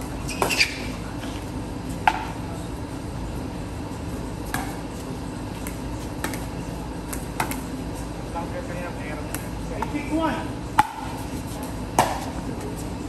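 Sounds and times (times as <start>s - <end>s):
paddles hitting plastic ball: 5.6s - 6.5s, 7.1s - 7.7s.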